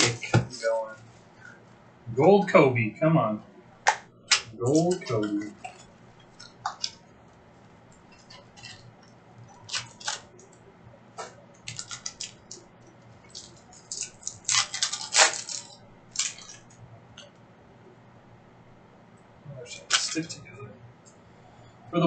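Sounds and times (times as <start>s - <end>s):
plastic wrapper crinkling and tearing: 8.0s - 10.6s, 11.6s - 16.7s, 19.8s - 20.3s.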